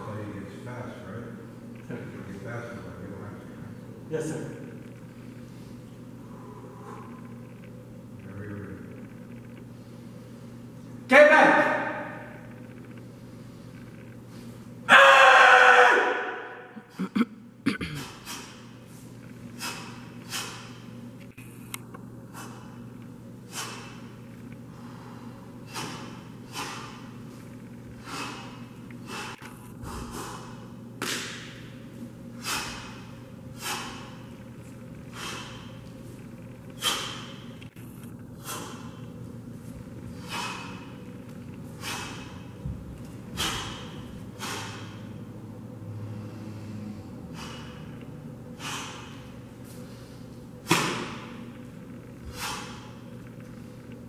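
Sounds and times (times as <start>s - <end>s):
uniform snapping: 31.0s - 31.4s.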